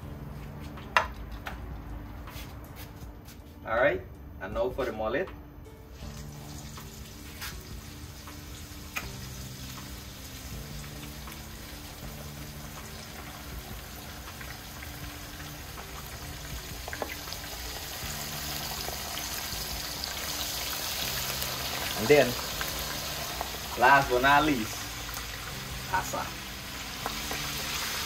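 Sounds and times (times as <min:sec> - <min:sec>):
hot oil sizzling and bubbling: 0:05.9 - 0:28.0.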